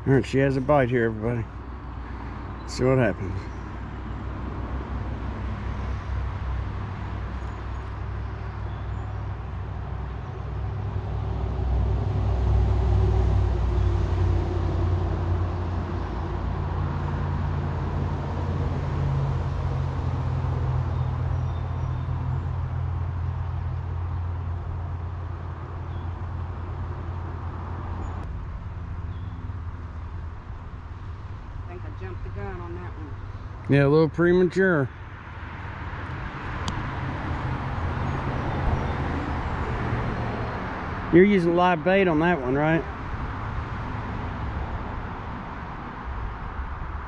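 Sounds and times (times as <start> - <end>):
traffic rumble: 0.0 - 47.0.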